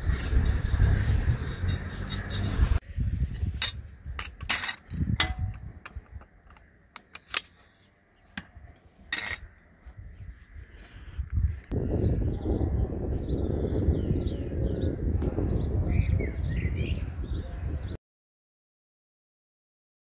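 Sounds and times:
garden tools scraping soil: 0.0 - 2.8, 8.8 - 9.6.

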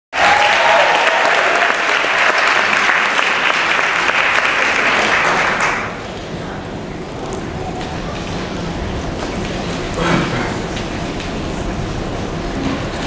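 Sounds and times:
audience applauding: 0.1 - 6.1.

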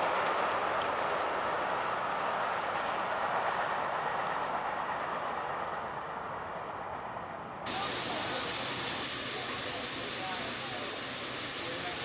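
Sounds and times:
train rumbling past: 0.0 - 12.0
loud hiss: 7.7 - 12.0.

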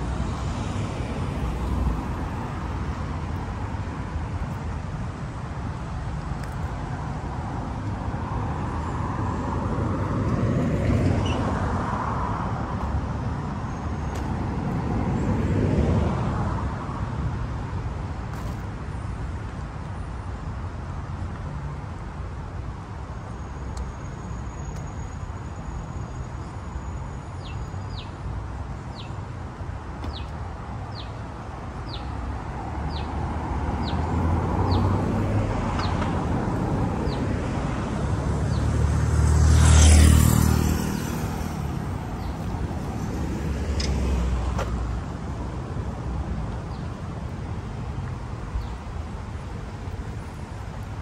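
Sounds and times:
low traffic hum: 0.0 - 51.0
car passing: 31.9 - 51.0.

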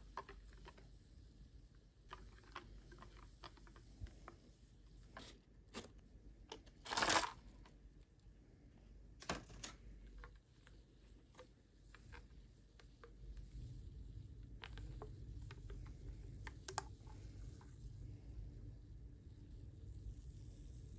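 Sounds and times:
rustling scrape: 6.8 - 7.5.

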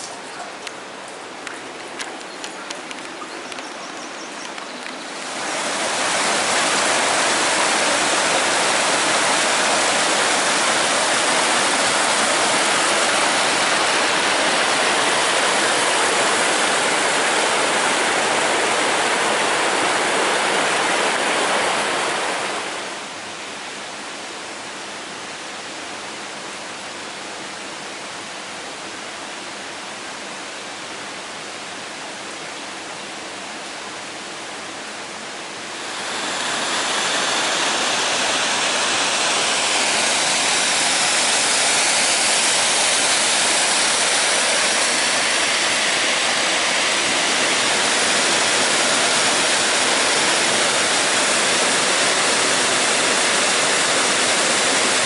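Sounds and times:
waterfall roaring: 0.0 - 55.0
faint clicks: 1.4 - 3.8, 4.4 - 5.0.

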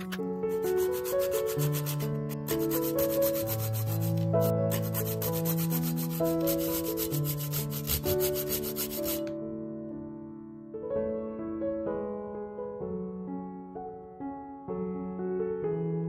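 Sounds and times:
nutmeg grating on grater: 0.0 - 9.3.

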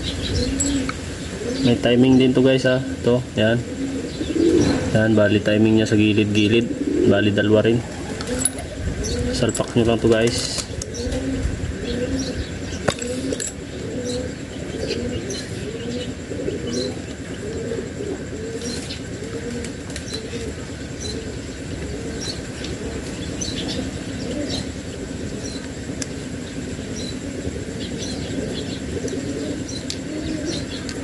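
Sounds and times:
pigeons cooing: 0.0 - 31.0
small birds chirping: 0.0 - 31.0.

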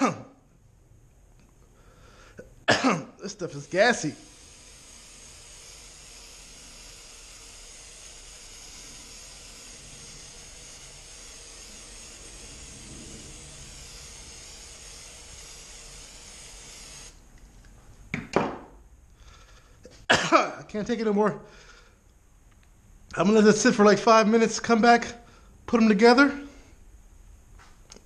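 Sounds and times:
aerosol spray hiss: 3.2 - 17.2.

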